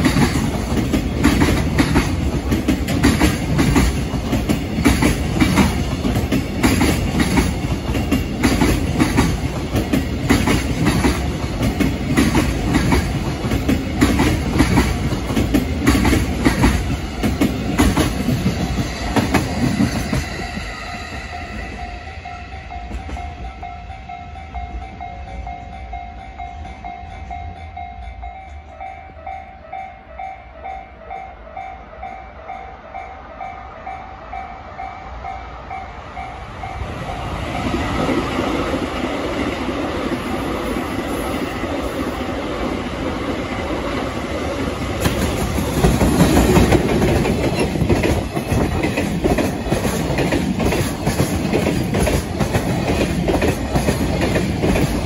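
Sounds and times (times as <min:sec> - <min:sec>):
train wheels clattering over rail joints: 0:00.0 - 0:21.8, 0:44.9 - 0:55.0
freight train rumble: 0:00.0 - 0:55.0
level-crossing warning bell: 0:16.6 - 0:38.3.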